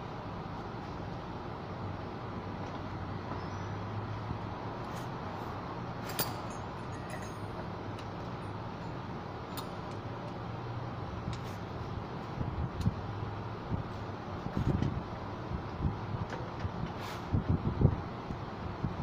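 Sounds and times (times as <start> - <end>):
metal hand tools clinking: 6.0 - 7.6.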